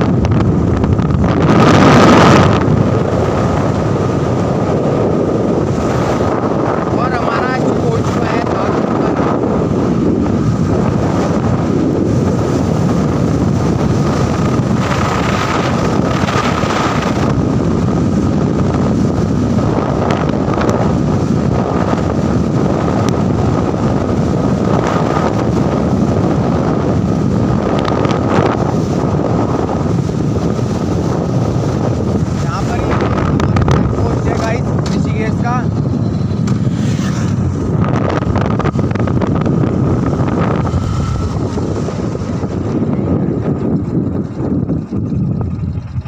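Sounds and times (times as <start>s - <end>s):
motorbike engine: 0.0s - 46.0s
wind buffeting microphone: 0.0s - 46.0s
tyre noise on road: 8.2s - 46.0s
steady thin whine: 31.8s - 46.0s.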